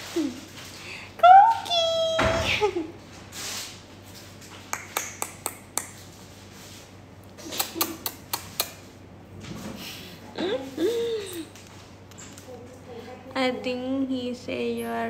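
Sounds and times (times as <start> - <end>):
lip-smacking kiss sounds: 4.6 - 6.0, 7.4 - 8.9.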